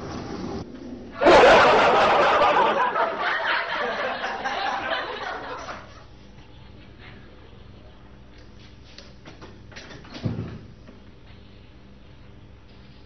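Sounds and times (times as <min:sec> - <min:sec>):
audience laughter: 0:01.2 - 0:08.1.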